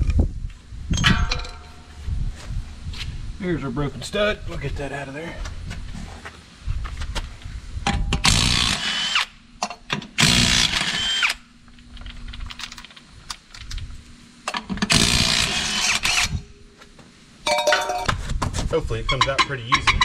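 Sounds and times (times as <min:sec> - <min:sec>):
power tool spinning lug nuts: 0:08.2 - 0:09.3, 0:10.2 - 0:11.4, 0:14.8 - 0:16.4.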